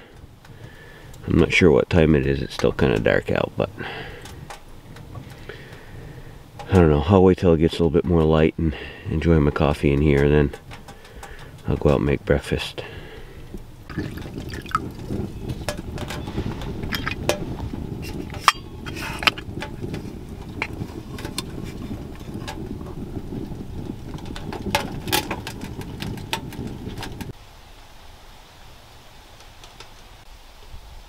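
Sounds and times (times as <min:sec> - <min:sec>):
fire crackles and clicks: 0:00.0 - 0:01.4, 0:02.1 - 0:06.9, 0:08.0 - 0:27.4
outdoor hiss: 0:00.0 - 0:15.2, 0:27.3 - 0:31.0
wood stove fire rumbling: 0:00.0 - 0:27.9.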